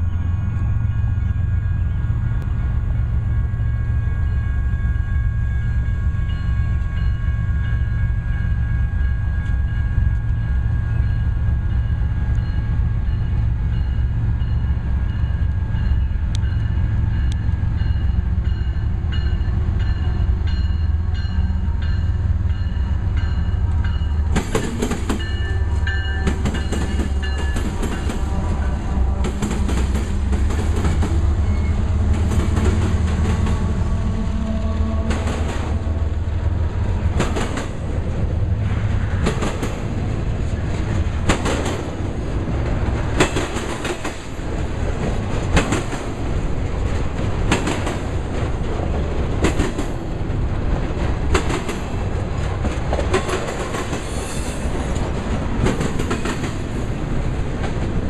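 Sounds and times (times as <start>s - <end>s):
crossing warning bell ringing: 0.0s - 37.9s
clattering rail and wheel noise: 0.0s - 58.0s
freight train rumbling: 0.0s - 58.0s.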